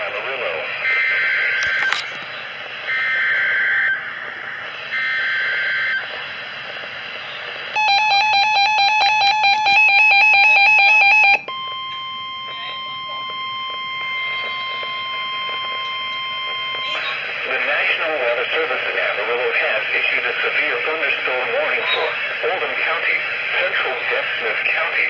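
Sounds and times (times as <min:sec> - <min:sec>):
radio hiss: 0:00.0 - 0:07.8, 0:14.0 - 0:25.0
pulsing piercing alarm beep: 0:00.8 - 0:02.0, 0:02.8 - 0:04.2, 0:04.8 - 0:06.1, 0:07.7 - 0:17.3
steady warning alert tone: 0:02.8 - 0:06.3, 0:07.7 - 0:17.4.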